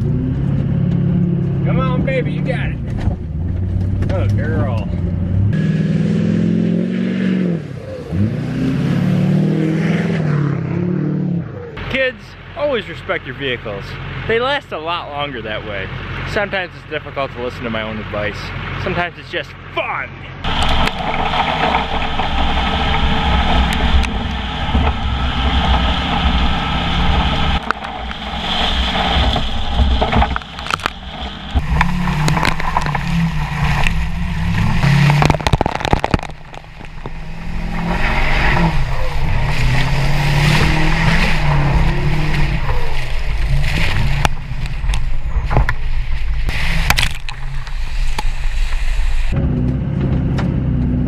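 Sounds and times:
truck engine revving: 0.0s - 19.4s, 20.3s - 51.0s
tires churning through mud: 0.0s - 51.0s
mud clods spattering: 29.4s - 37.3s, 46.5s - 47.8s.

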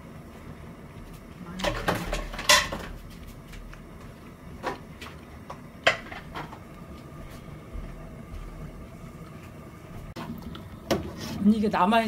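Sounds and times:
water boiling in a pot: 0.0s - 12.0s
kitchenware knocks and clinks: 1.6s - 3.0s.

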